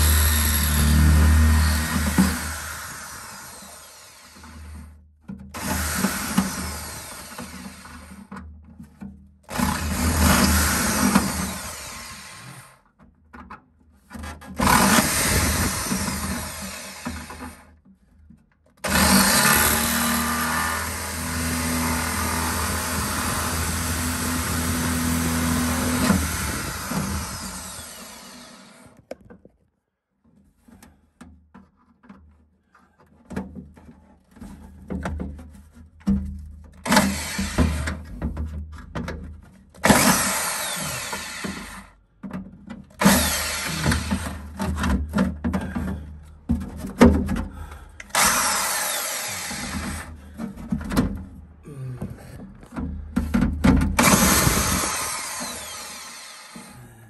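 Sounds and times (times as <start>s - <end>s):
electric drill boring into tile: 0.0s - 4.9s, 5.6s - 8.2s, 9.5s - 12.8s, 14.6s - 17.6s, 18.8s - 29.0s, 36.8s - 38.0s, 39.8s - 42.0s, 43.0s - 44.6s, 48.1s - 50.2s, 54.0s - 56.8s.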